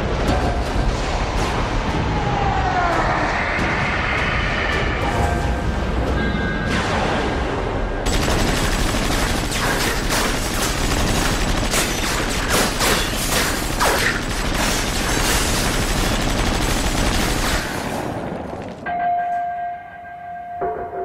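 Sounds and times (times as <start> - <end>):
machine gun automatic fire: 8.1 - 18.8.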